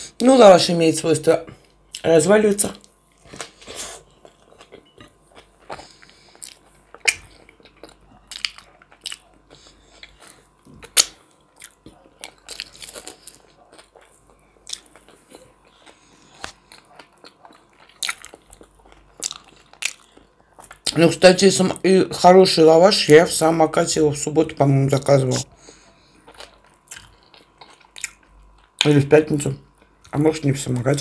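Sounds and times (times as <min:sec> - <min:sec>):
person chewing food: 0:02.8 - 0:21.0, 0:25.3 - 0:28.9.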